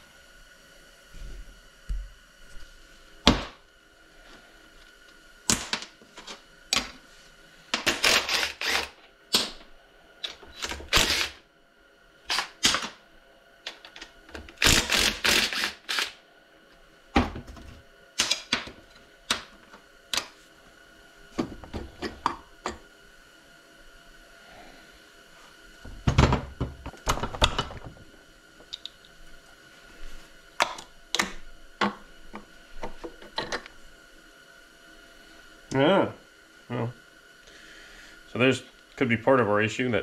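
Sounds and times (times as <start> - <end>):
power driver whirring: 7.8 - 9.5, 10.2 - 11.4, 12.3 - 13.0, 13.7 - 16.2.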